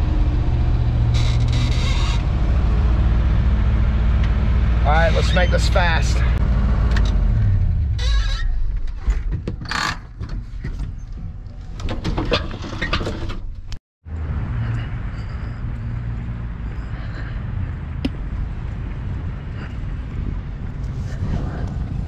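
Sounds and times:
wind buffeting microphone: 14.8s - 22.0s.

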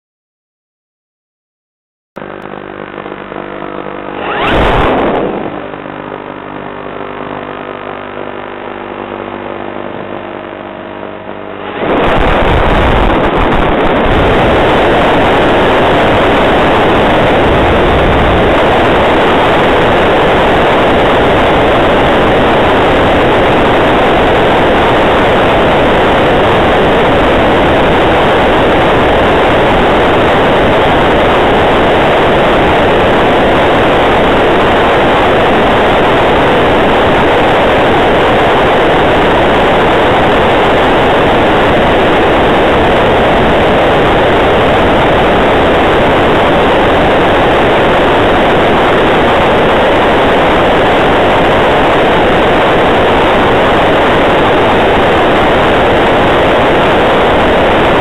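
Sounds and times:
electric motor and propeller whine: 2.2s - 58.0s
airflow rushing: 4.0s - 6.4s, 11.4s - 15.2s.

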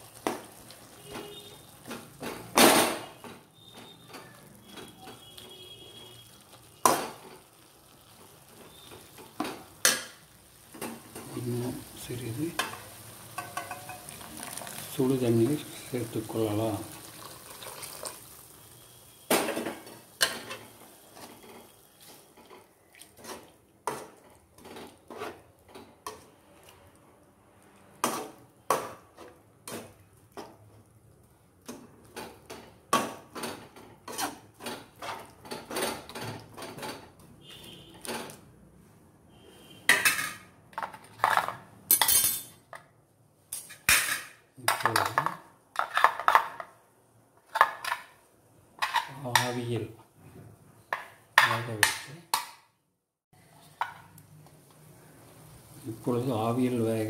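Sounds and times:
spatula knocking steel pot: 13.4s - 14.1s
steel plates clinking: 13.4s - 14.1s.

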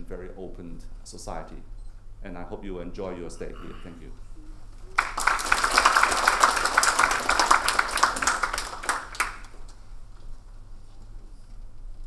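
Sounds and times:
people applauding: 4.8s - 9.8s.

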